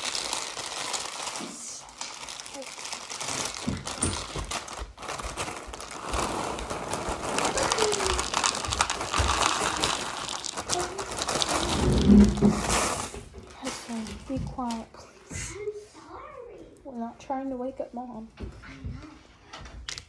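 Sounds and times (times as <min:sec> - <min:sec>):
plastic bag crinkling: 0:00.0 - 0:15.0.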